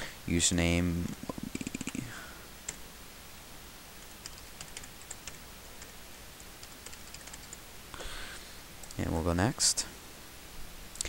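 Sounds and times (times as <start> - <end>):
keyboard typing: 1.2 - 2.1, 4.0 - 5.9, 6.6 - 7.6.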